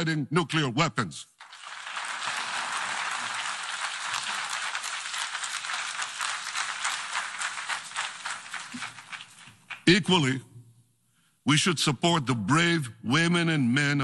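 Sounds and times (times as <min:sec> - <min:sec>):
audience applauding: 0:01.4 - 0:09.9.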